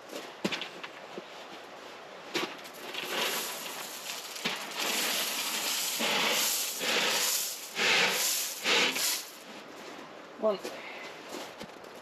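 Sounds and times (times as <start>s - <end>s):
gravel pouring: 2.6s - 9.4s.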